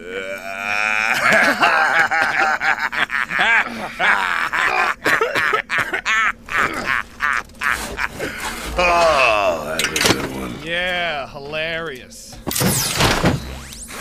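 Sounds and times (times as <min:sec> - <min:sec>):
men laughing loudly: 0:00.7 - 0:10.5.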